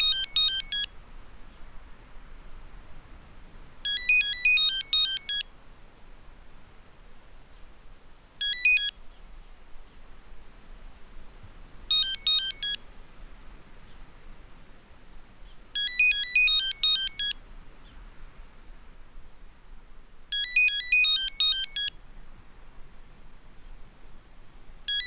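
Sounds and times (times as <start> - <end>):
phone ringtone beeps: 0.0 - 0.9, 3.8 - 5.5, 8.4 - 9.0, 11.9 - 12.8, 15.8 - 17.4, 20.3 - 21.9.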